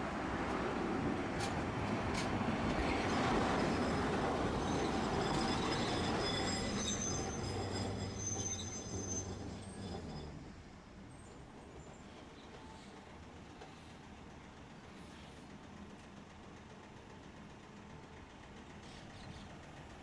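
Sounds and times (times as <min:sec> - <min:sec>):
wheels rumbling on rail: 0:00.0 - 0:20.0
high thin wheel squeal: 0:02.8 - 0:12.9.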